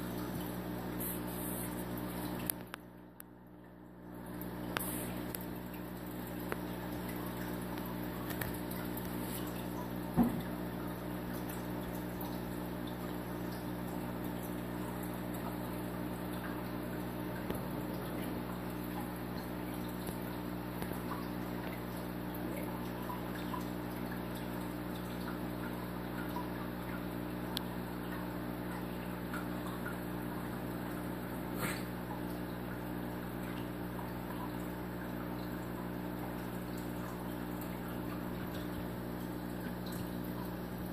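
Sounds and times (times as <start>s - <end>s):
low machine hum: 0.0s - 40.9s.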